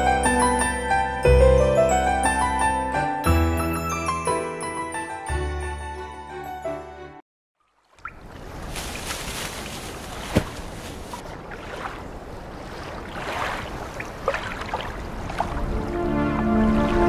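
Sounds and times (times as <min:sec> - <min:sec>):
water lapping against rocks: 0:07.7 - 0:15.7.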